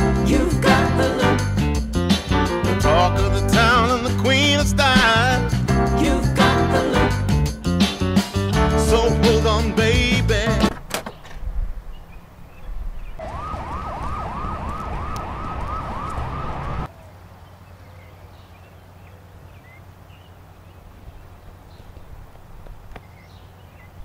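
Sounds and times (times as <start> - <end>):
siren yelping: 13.2 - 16.9.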